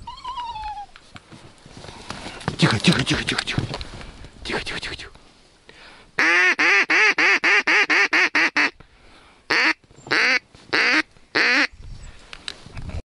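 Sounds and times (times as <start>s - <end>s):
duck quacking: 6.2s - 8.8s, 9.5s - 11.7s.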